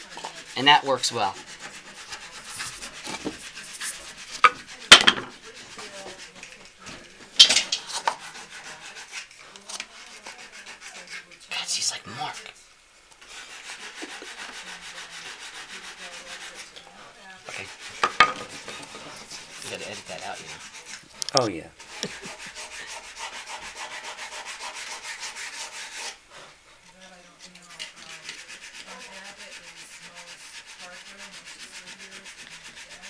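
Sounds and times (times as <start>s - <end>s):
rubbing and scraping on wood: 0.0s - 12.6s, 13.2s - 33.0s
wooden parts knocking: 4.4s - 5.4s.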